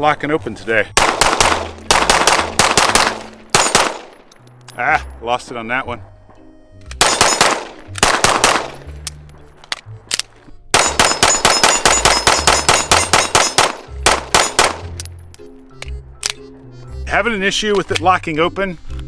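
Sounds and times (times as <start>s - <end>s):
pistol shots: 1.0s - 4.3s, 7.0s - 8.9s, 10.7s - 15.0s.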